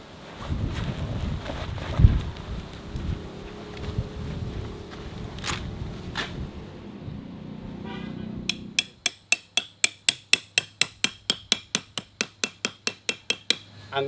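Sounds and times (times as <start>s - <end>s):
wind rumble on microphone: 0.0s - 7.8s
hammer on metal stake: 8.5s - 13.7s.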